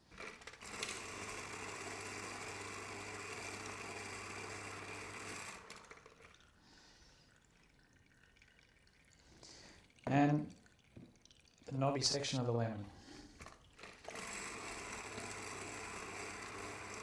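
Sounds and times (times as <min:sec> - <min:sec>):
citrus press motor whirring: 0:00.1 - 0:06.1, 0:13.8 - 0:17.0.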